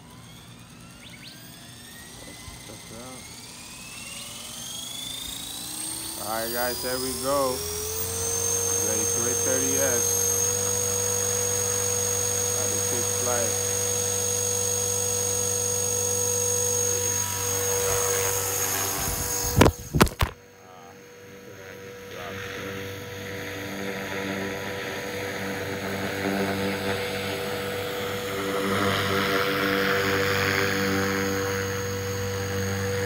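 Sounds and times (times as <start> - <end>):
rc helicopter motor and rotor whine: 0.0 - 33.0
phone hitting the ground: 19.5 - 20.4.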